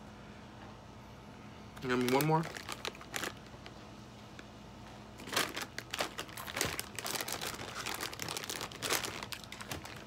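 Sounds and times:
chewing crunchy chips: 0:05.2 - 0:10.0.

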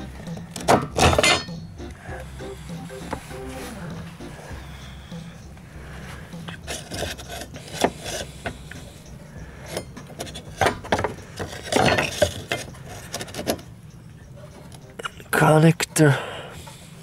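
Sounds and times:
plastic ring scraping and clacking: 0:06.4 - 0:09.0, 0:09.6 - 0:13.7.

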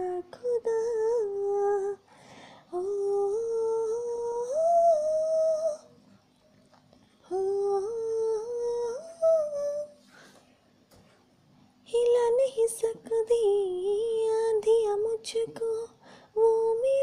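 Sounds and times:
woman humming a melody: 0:02.7 - 0:05.9, 0:07.2 - 0:10.0.

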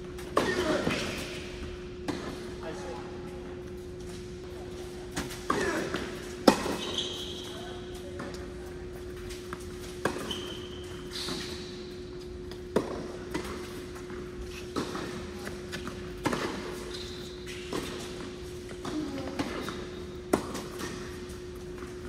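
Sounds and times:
tennis ball bouncing on court: 0:12.2 - 0:16.8, 0:17.5 - 0:22.0.

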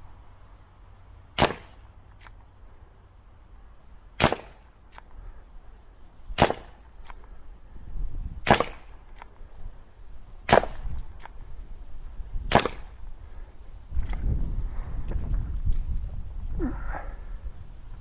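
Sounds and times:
air pistol shots: 0:01.4 - 0:02.3, 0:04.2 - 0:05.0, 0:06.4 - 0:07.2, 0:08.4 - 0:09.3, 0:10.4 - 0:11.4, 0:12.4 - 0:13.0.

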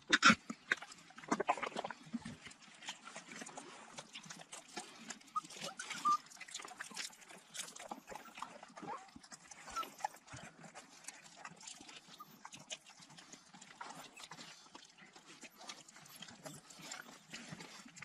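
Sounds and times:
dogs squeaking: 0:05.3 - 0:06.3, 0:09.6 - 0:10.2.

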